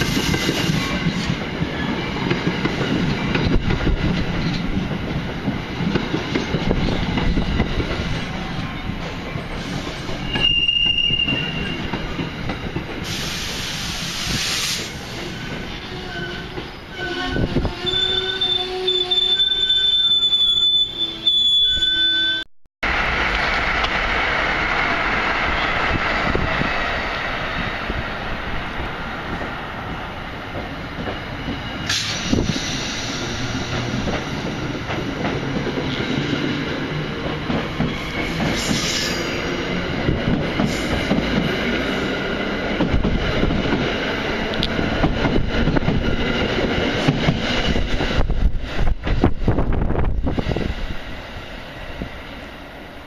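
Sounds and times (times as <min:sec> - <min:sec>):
train wheels rumbling on rail: 0:00.0 - 0:19.5, 0:22.8 - 0:53.0
high wheel squeal: 0:09.6 - 0:12.0, 0:13.2 - 0:22.5.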